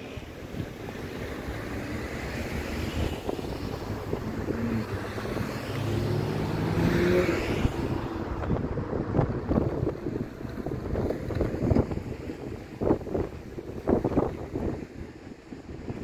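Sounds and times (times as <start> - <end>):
wind noise on microphone: 0.0 - 16.0
vehicle engine passing: 1.5 - 11.5.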